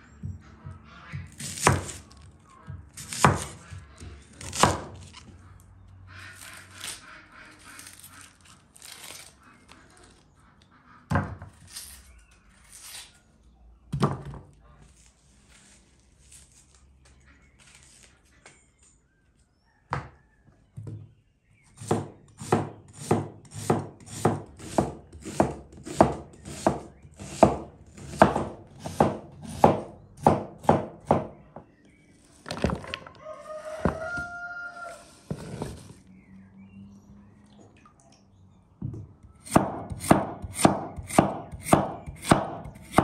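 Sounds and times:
knife chopping on cutting board: 0:01.3 - 0:02.2, 0:02.8 - 0:03.8, 0:04.4 - 0:05.1, 0:21.8 - 0:31.3, 0:39.4 - 0:43.0
rooster crowing: 0:33.0 - 0:35.3.

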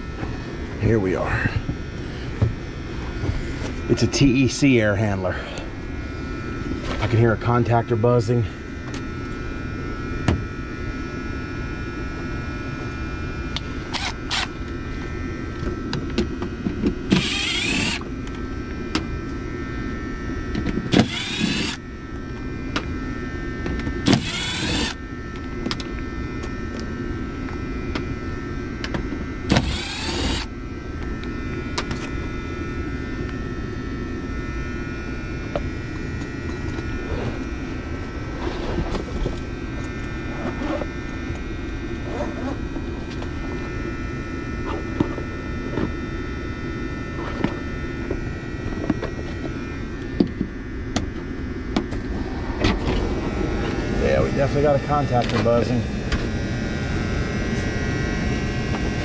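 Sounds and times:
contactor buzzing: 0:00.0 - 0:59.0
electrical hum of running unit: 0:00.0 - 0:59.0
cordless drill whining: 0:13.5 - 0:14.7, 0:17.1 - 0:18.4, 0:20.9 - 0:21.9, 0:24.0 - 0:25.1, 0:29.5 - 0:32.1.

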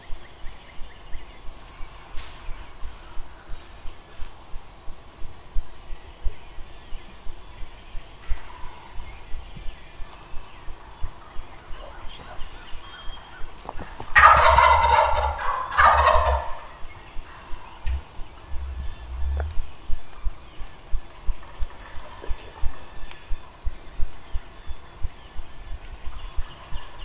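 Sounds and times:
turkey gobbling: 0:14.1 - 0:19.6
low thumps: 0:17.8 - 0:20.1.

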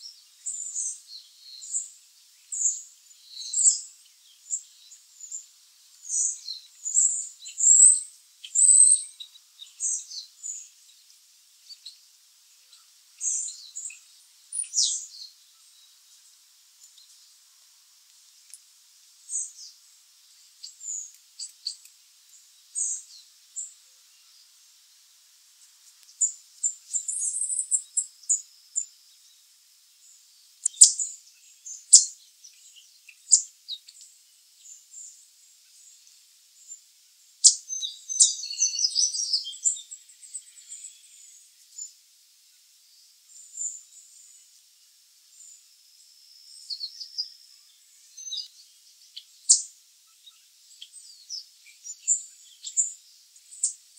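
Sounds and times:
chickadees calling: 0:02.5 - 0:10.8, 0:12.6 - 0:15.8, 0:30.6 - 0:34.0, 0:46.6 - 0:53.8.

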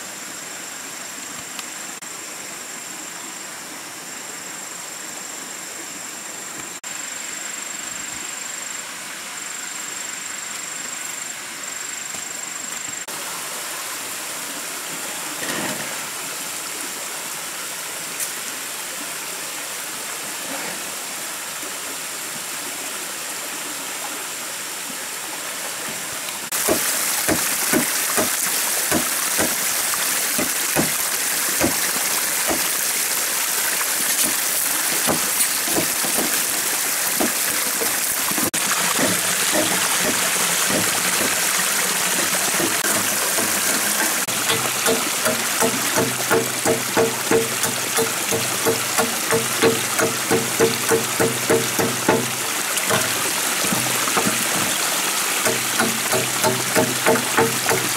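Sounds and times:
stream and waterfall rushing: 0:00.0 - 0:57.9
knife chopping bamboo: 0:26.6 - 0:29.6, 0:30.4 - 0:31.0, 0:31.6 - 0:31.8, 0:32.5 - 0:32.7, 0:35.0 - 0:36.4, 0:42.6 - 0:54.7, 0:55.4 - 0:57.9.

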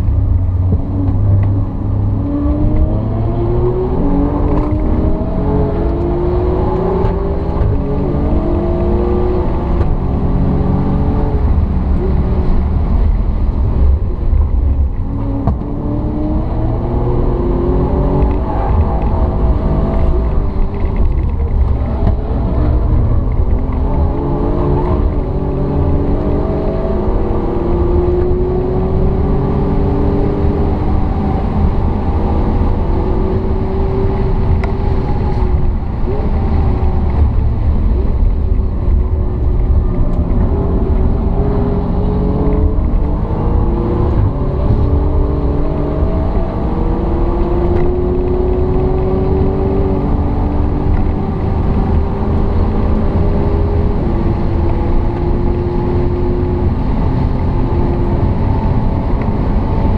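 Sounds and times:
car engine accelerating: 0:00.0 - 0:59.9.

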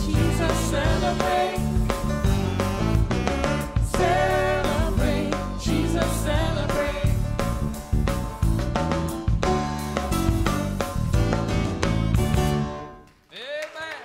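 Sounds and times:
gospel singing: 0:00.0 - 0:02.4, 0:03.0 - 0:07.8
band with bass and drums: 0:00.0 - 0:13.0.

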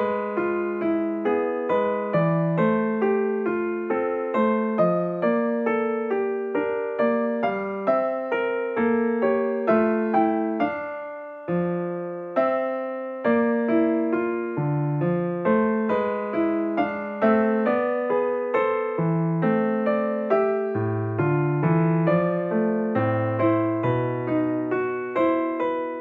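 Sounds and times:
piano tune: 0:00.0 - 0:26.0.

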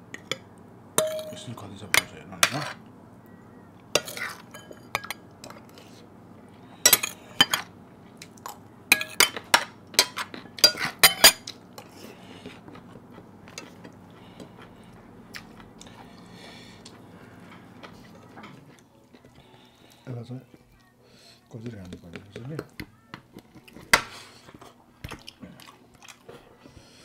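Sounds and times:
metal utensils clinking on plates: 0:01.0 - 0:02.8, 0:04.0 - 0:05.9, 0:06.8 - 0:07.7, 0:08.3 - 0:11.9.

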